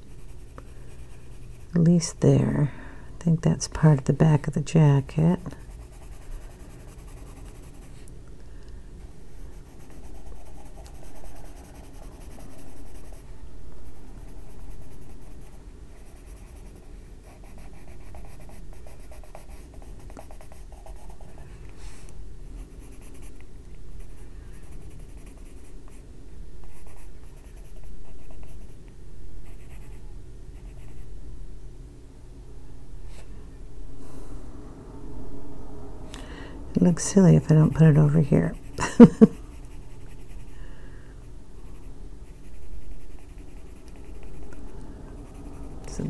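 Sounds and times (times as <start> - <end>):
pencil scratching across paper: 5.2 - 8.0, 9.6 - 21.4, 39.5 - 40.5, 41.7 - 44.6.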